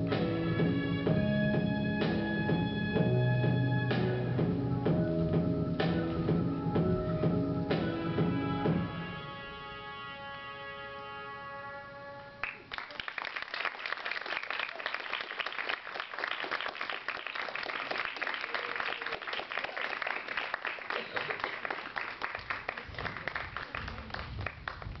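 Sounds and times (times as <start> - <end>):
audience applauding: 12.4 - 25.0.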